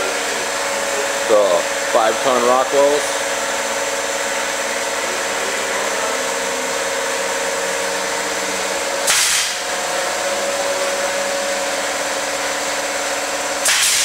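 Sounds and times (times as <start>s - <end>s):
machine humming: 0.0s - 14.0s
loud burst of hiss: 9.1s - 9.6s, 13.6s - 14.0s.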